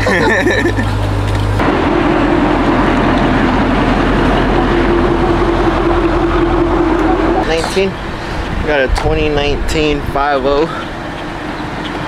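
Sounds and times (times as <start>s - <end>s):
car engine drone: 0.0s - 12.0s
road and wind noise: 0.0s - 12.0s.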